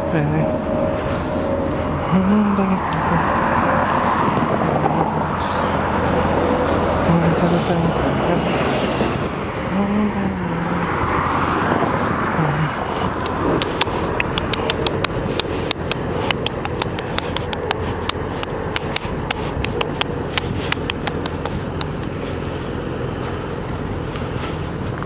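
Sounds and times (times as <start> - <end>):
road traffic noise: 0.0 - 25.0
sharp irregular clicks: 13.1 - 22.2.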